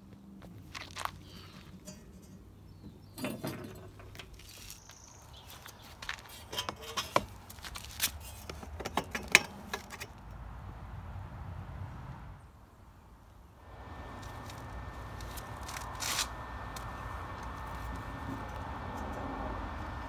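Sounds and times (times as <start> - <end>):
metal exhaust parts knocking: 1.4 - 4.6, 8.4 - 10.1, 16.7 - 20.0.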